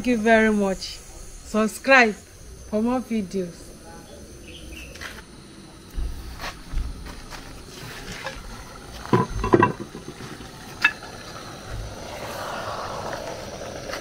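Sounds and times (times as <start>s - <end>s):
soft sizzle: 0.0s - 14.0s
pot lid clanking: 9.0s - 11.1s.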